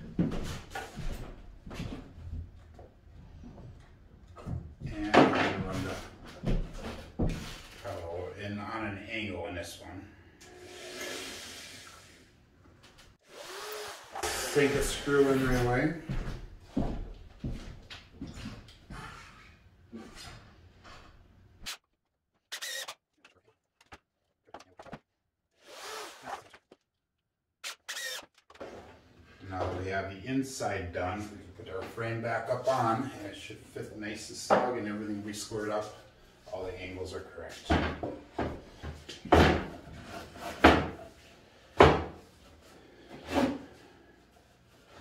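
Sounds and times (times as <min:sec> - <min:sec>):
cordless drill whirring: 0:13.2 - 0:15.0, 0:22.5 - 0:23.0, 0:25.6 - 0:26.4, 0:27.7 - 0:28.6.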